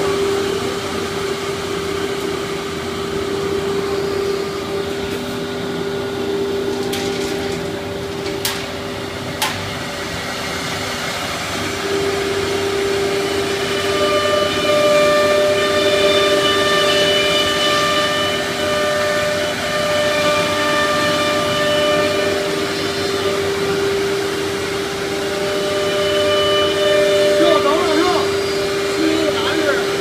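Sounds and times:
second higher whine: 0.0s - 15.0s
router spindle high whine: 0.0s - 30.0s
dust extraction rushing: 20.4s - 30.0s.

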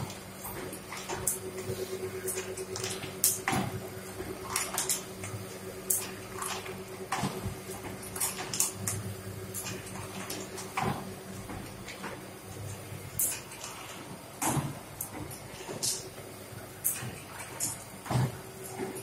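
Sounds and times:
machine motor hum: 0.0s - 13.2s.

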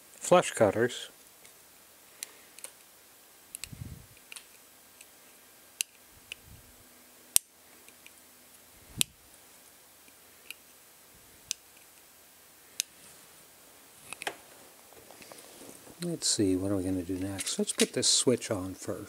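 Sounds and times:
side cutters snapping wire leads: 7.3s - 8.2s.

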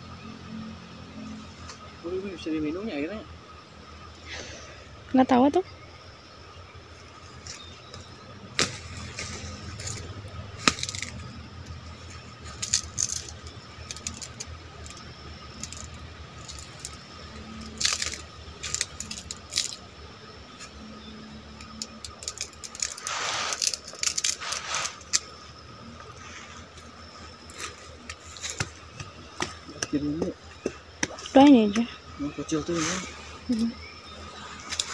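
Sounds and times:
twigs crackling: 6.8s - 34.9s
leaves brushing: 6.9s - 20.8s, 21.9s - 31.4s, 32.4s - 34.9s
footsteps through undergrowth: 7.1s - 11.4s.

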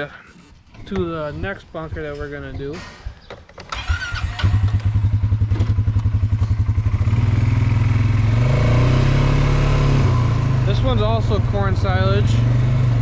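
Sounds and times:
atv engine pulling away: 3.7s - 13.0s.

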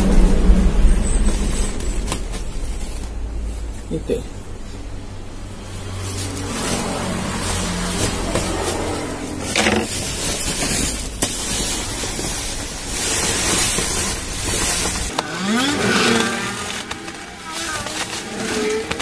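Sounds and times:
low rumble: 0.0s - 15.1s
sack and plastic bag rustling: 5.8s - 19.0s.

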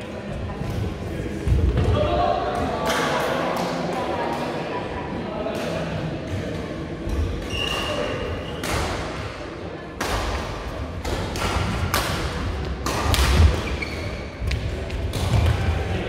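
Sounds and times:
rackets hitting shuttlecock: 10.0s - 15.6s.

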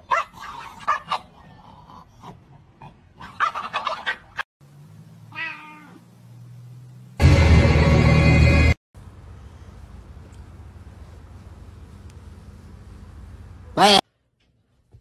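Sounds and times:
low steady hum: 9.0s - 15.0s
falling animal cry: 13.8s - 14.0s.

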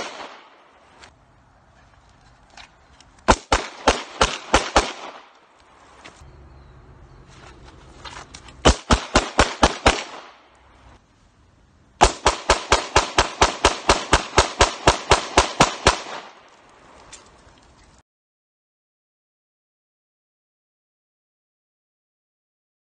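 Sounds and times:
pistol shots: 0.0s - 0.6s, 3.3s - 5.4s, 8.6s - 10.5s, 12.0s - 16.4s.

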